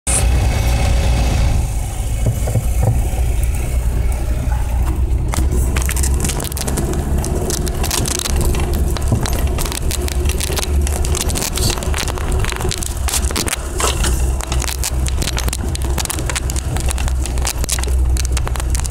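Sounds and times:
car engine and road rumble: 0:00.1 - 0:18.9.

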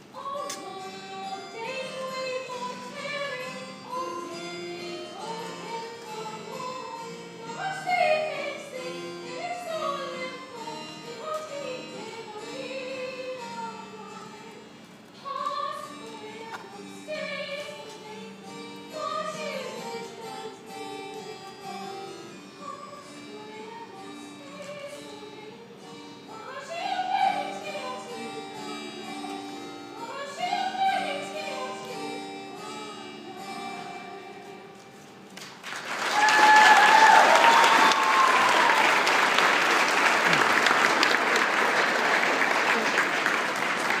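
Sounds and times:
keyboard accompaniment: 0:00.0 - 0:44.0
audience applause: 0:35.6 - 0:44.0
whoops and cheers: 0:36.0 - 0:39.1.

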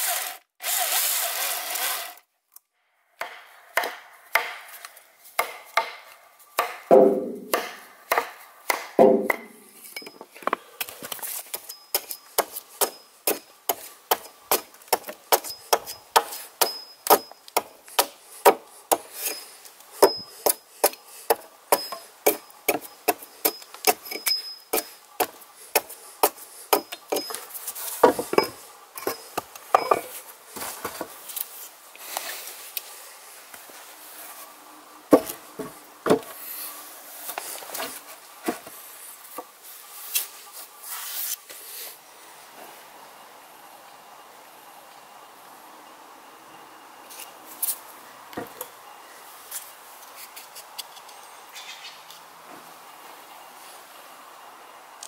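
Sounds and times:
hatchet chopping log: 0:03.2 - 0:04.7, 0:05.4 - 0:09.6, 0:11.5 - 0:19.4, 0:20.0 - 0:27.4.

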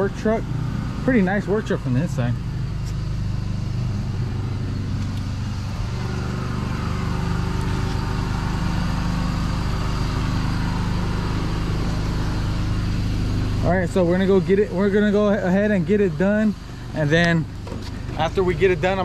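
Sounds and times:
engine running steadily: 0:00.0 - 0:19.0.

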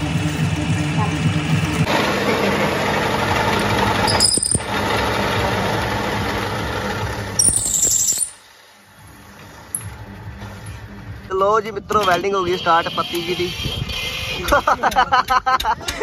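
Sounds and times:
drill bit squealing: 0:07.4 - 0:08.4.

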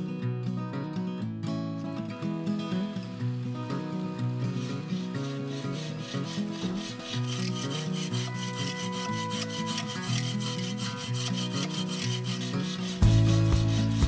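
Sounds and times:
background music: 0:00.0 - 0:14.0
saw rasping through log: 0:03.0 - 0:14.0.

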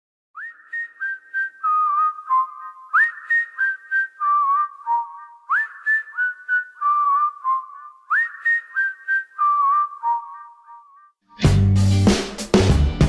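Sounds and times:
whistled melody: 0:00.4 - 0:11.4.

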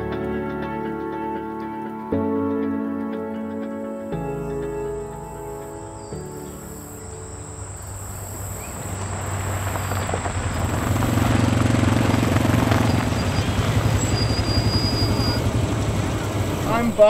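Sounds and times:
utility vehicle engine droning: 0:04.2 - 0:17.0.

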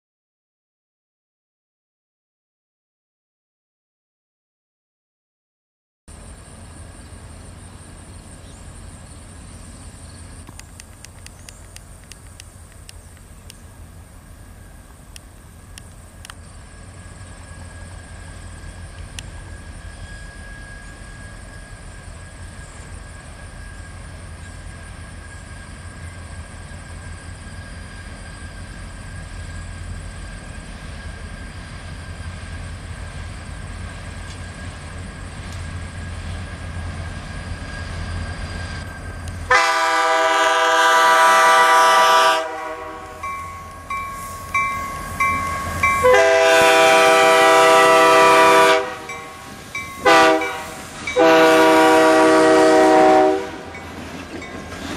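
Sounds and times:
locomotive low rumble: 0:06.1 - 0:54.9
locomotive air horn blasts: 0:39.5 - 0:43.3, 0:45.9 - 0:53.8.

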